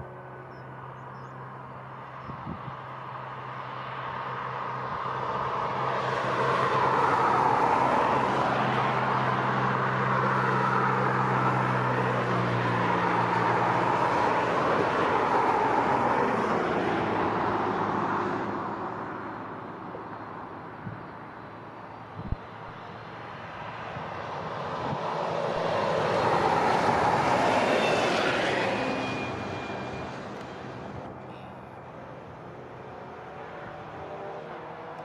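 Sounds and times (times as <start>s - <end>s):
jet engines whining: 24.6s - 31.5s.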